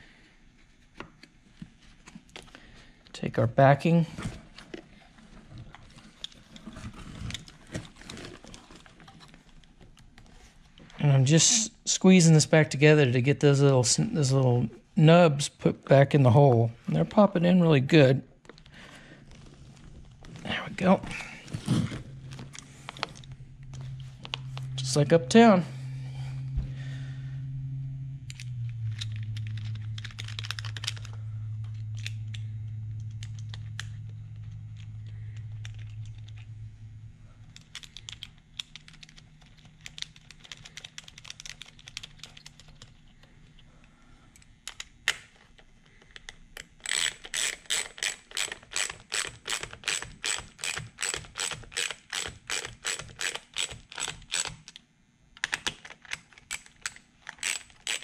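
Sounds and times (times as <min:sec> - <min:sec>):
low steady hum: 0:00.0 - 0:58.0
small clicks of parts handled: 0:28.3 - 0:32.4, 0:37.5 - 0:43.7, 0:44.3 - 0:54.8, 0:55.4 - 0:58.0
hand ratchet clicking: 0:46.8 - 0:54.7, 0:56.5 - 0:58.0.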